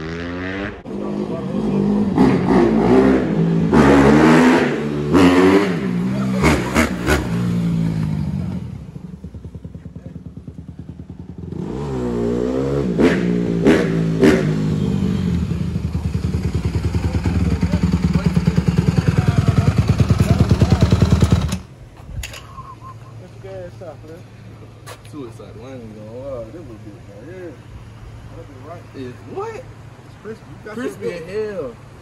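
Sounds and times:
dirt bike engine revving and idling: 0:00.0 - 0:21.7.

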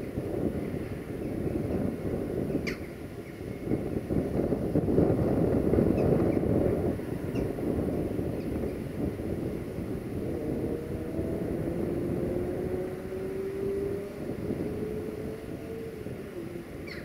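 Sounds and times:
electric locomotive humming: 0:06.5 - 0:17.0.

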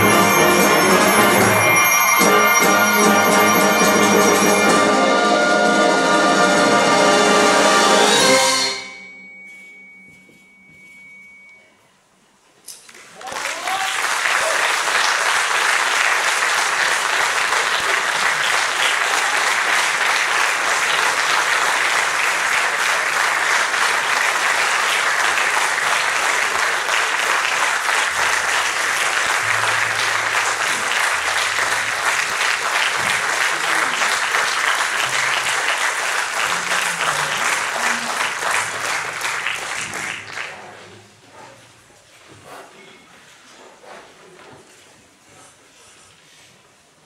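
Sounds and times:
audience applauding: 0:00.0 - 0:07.2, 0:12.9 - 0:40.8.

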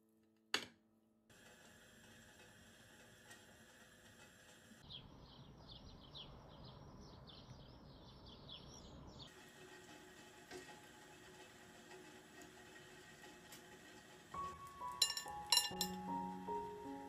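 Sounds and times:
bird chirping: 0:04.8 - 0:09.3.

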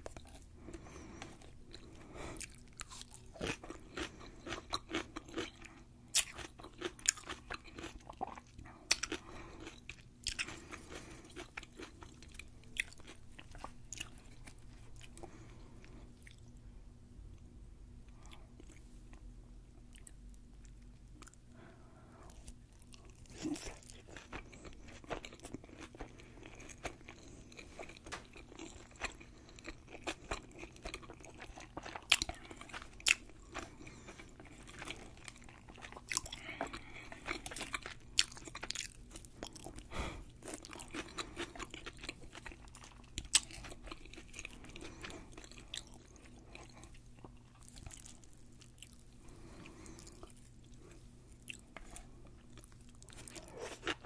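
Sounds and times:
person chewing crunchy food: 0:00.0 - 0:16.6, 0:18.1 - 0:54.0.

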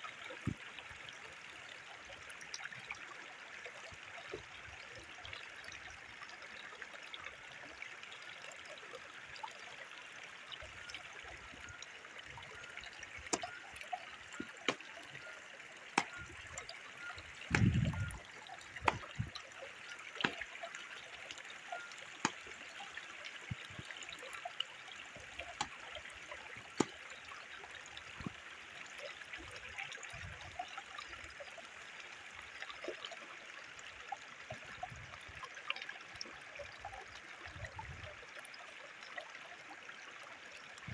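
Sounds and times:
stream trickling over rock: 0:00.0 - 0:40.9
sticks clicking and knocking: 0:17.5 - 0:17.9, 0:18.8 - 0:19.3, 0:20.2 - 0:20.4
low thump: 0:17.5 - 0:18.2.

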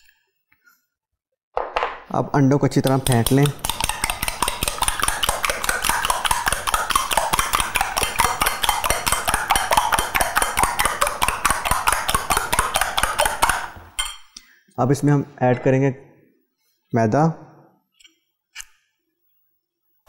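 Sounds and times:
spoon clinking against glass bowl: 0:14.0 - 0:14.4.

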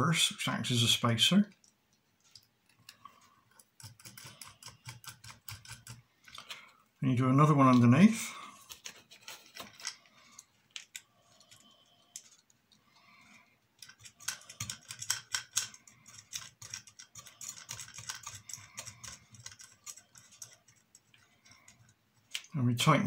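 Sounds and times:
metal nuts clicking on plastic: 0:02.2 - 0:06.5, 0:08.7 - 0:12.6, 0:13.8 - 0:22.5.

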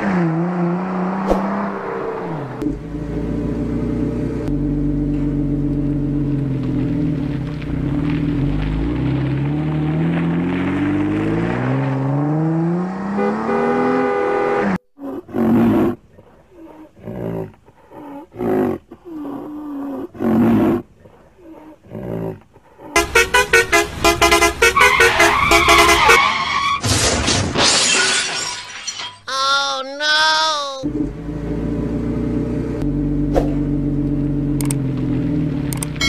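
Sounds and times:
vehicle engine revving: 0:00.0 - 0:14.8, 0:30.8 - 0:36.0.

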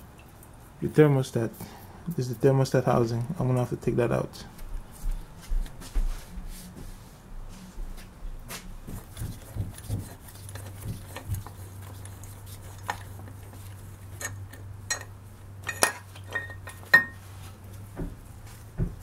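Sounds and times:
metallic knocks and clinks: 0:14.2 - 0:17.2.

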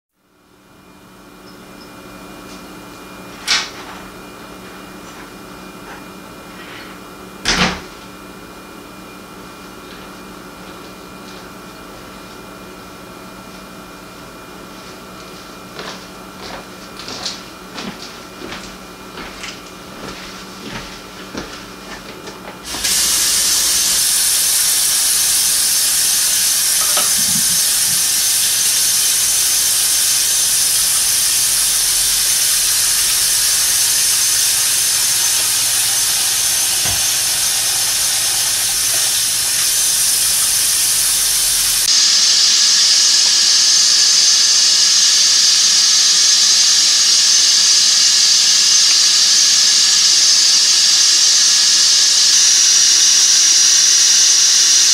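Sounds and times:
faucet water running into sink: 0:22.7 - 0:41.9.

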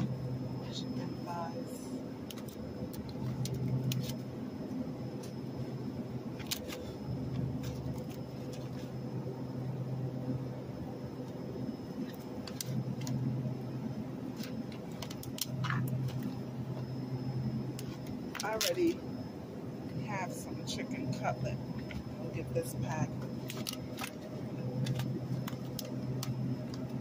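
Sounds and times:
refrigerated case humming: 0:00.0 - 0:27.0
plastic trays clicking and crinkling: 0:24.8 - 0:27.0.

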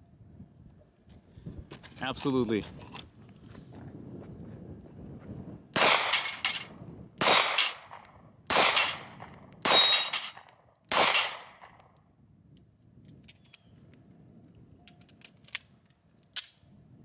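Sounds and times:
pistol shots: 0:05.8 - 0:11.8
steel plate target ringing: 0:09.7 - 0:10.4.

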